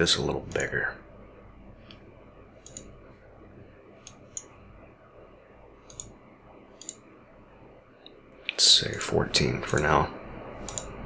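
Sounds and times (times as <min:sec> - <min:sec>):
computer mouse clicks: 0:02.6 - 0:02.9, 0:04.0 - 0:04.5, 0:05.8 - 0:06.2, 0:06.8 - 0:07.0, 0:10.6 - 0:11.0.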